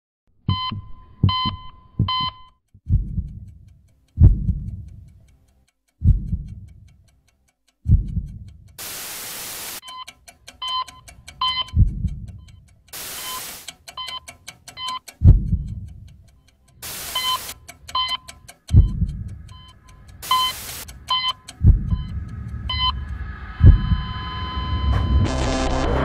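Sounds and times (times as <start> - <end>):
short beeping tones: 0.5 - 2.6, 9.8 - 11.8, 12.4 - 15.0, 17.0 - 23.0
low thumps: 0.5 - 4.9, 6.0 - 6.7, 7.9 - 8.5, 11.7 - 12.4, 15.2 - 15.9, 18.7 - 19.6, 21.5 - 24.2
deep bass hits: 2.9 - 3.5, 4.2 - 4.8, 6.0 - 6.6, 15.2 - 15.8, 18.7 - 19.4, 21.6 - 24.2
fast ticking: 2.9 - 24.3
burst of static: 8.8 - 9.8, 13.0 - 13.7, 16.8 - 17.6, 20.2 - 20.9.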